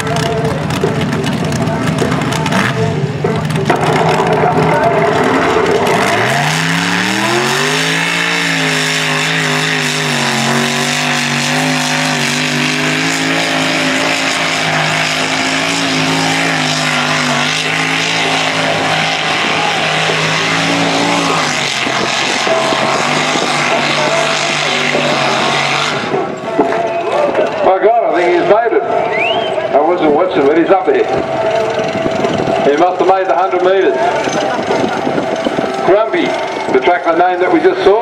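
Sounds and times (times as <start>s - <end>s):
engine at high revs under load: 2.0s - 3.1s, 3.7s - 26.4s.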